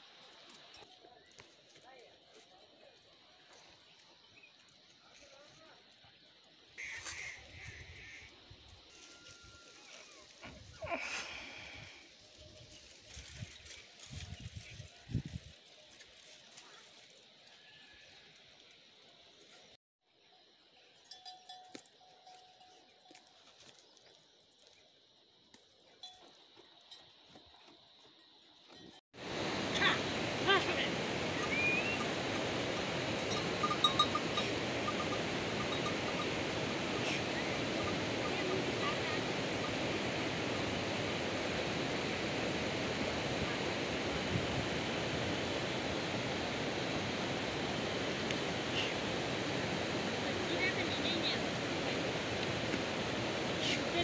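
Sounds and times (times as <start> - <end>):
faint ringing tone: 8.2 - 10.2, 31.3 - 39.8.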